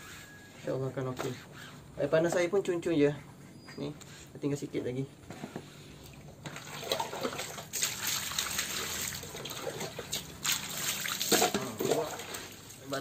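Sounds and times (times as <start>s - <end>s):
hose water splashing into bucket: 6.1s - 13.0s.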